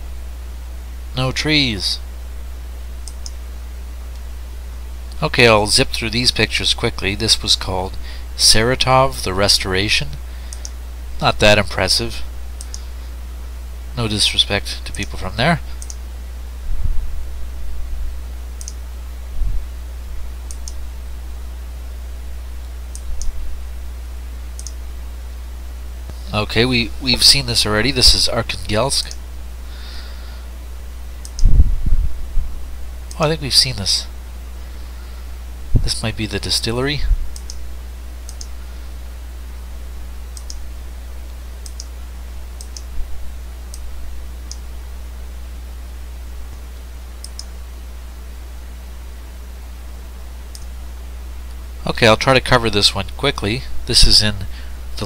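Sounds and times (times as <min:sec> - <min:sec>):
steady low hum: 0:00.0 - 0:55.0
computer mouse clicking: 0:03.0 - 0:03.4, 0:15.8 - 0:16.0, 0:18.6 - 0:18.8, 0:20.5 - 0:20.8, 0:24.6 - 0:24.8, 0:31.2 - 0:31.5, 0:37.4 - 0:37.6, 0:38.3 - 0:38.5, 0:40.4 - 0:40.6, 0:41.6 - 0:41.9, 0:42.6 - 0:42.9, 0:47.2 - 0:47.5
computer mouse button clicking: 0:24.6 - 0:24.8
soft low thumps: 0:31.4 - 0:32.6.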